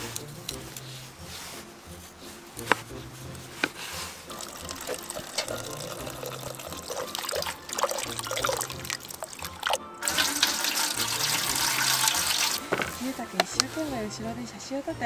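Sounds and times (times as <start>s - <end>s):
water pouring into bucket: 4.3s - 13.1s
water running into pot: 4.3s - 13.2s.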